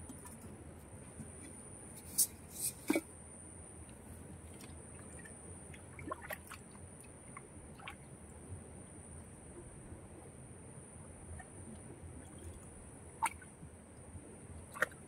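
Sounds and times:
hands splashing muddy water: 6.0s - 6.6s.

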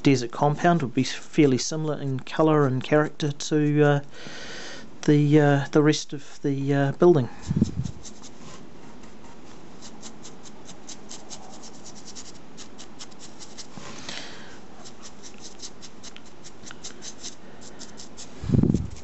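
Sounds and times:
steady background hiss: 0.0s - 19.0s
paintbrush scratching textured surface: 7.4s - 14.0s, 14.8s - 19.0s.

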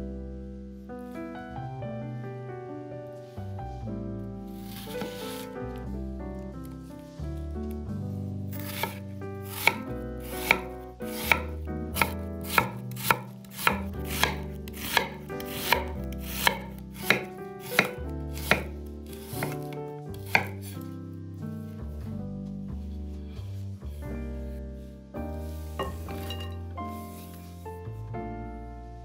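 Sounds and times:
soft background music: 0.0s - 29.0s
knife chopping on wooden board: 4.7s - 5.4s, 8.6s - 20.8s.

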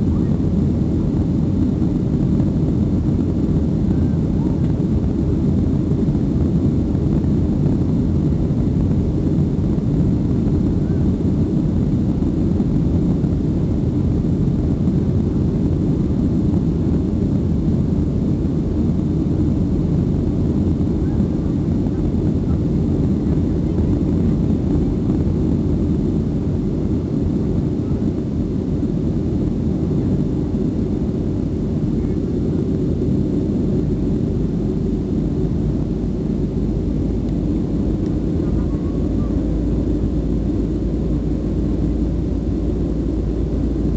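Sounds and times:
jet engines roaring: 0.0s - 43.9s.

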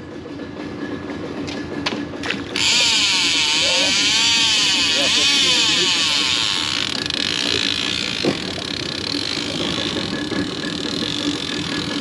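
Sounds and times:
fishing reel spool whirring: 2.2s - 12.0s.

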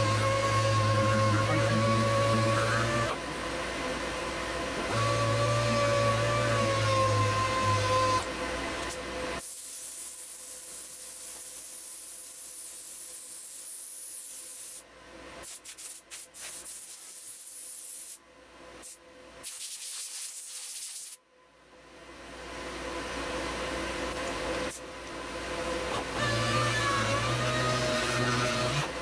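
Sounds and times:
sandpaper scrubbing wood: 15.6s - 18.1s.

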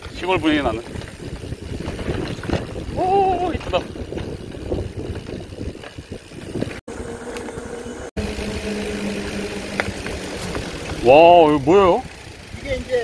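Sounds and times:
bike rattling over bumps: 0.0s - 13.0s
electric motor hum: 3.8s - 13.0s.

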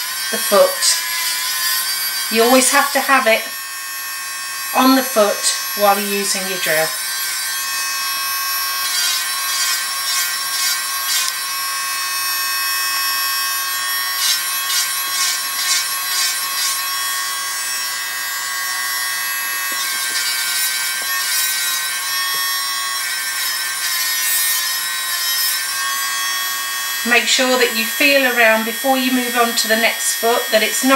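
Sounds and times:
electric nail drill whining: 0.0s - 30.9s
bur rasping against nail: 4.7s - 11.4s, 14.1s - 18.0s, 18.6s - 26.2s.

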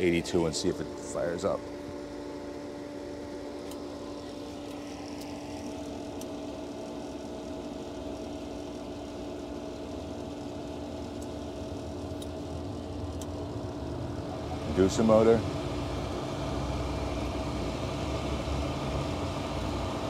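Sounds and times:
blower motor humming: 0.0s - 20.0s.

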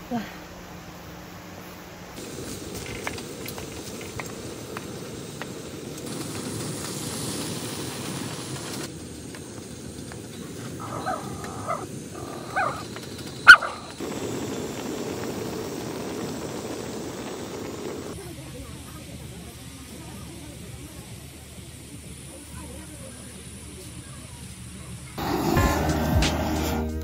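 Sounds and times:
small dog barking: 10.8s - 12.8s, 13.5s - 13.9s.

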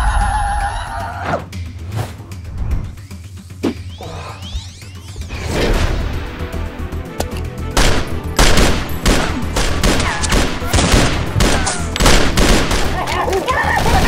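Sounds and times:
rapid handgun gunfire: 7.8s - 13.2s.

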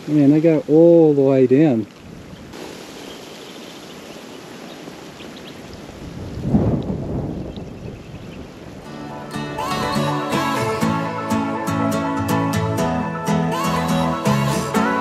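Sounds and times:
wind buffeting microphone: 1.8s - 2.6s, 4.9s - 8.9s
steady hiss: 2.5s - 5.2s.

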